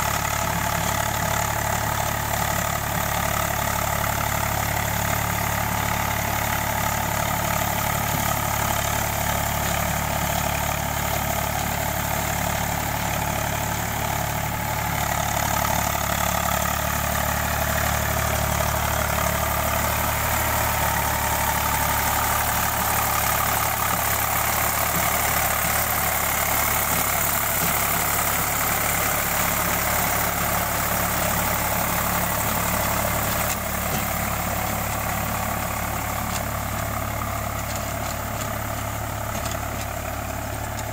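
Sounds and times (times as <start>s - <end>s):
tractor diesel engine running: 0.0s - 40.9s.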